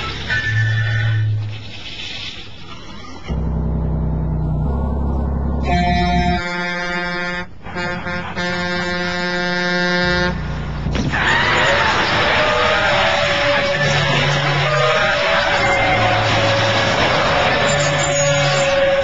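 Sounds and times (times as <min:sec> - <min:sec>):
truck engine rumbling: 0:00.0 - 0:19.0
truck air horn blasts: 0:05.6 - 0:10.8.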